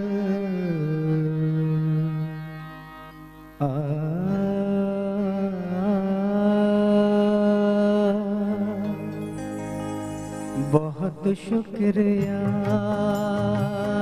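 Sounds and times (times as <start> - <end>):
man singing a long note: 0.0 - 2.5, 3.6 - 9.2
live band accompaniment: 12.0 - 14.0.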